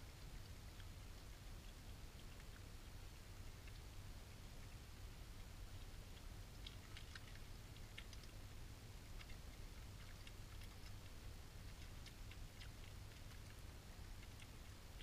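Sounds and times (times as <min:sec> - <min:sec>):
animals chewing and crunching: 0:00.0 - 0:15.0
steady low hum: 0:00.0 - 0:15.0.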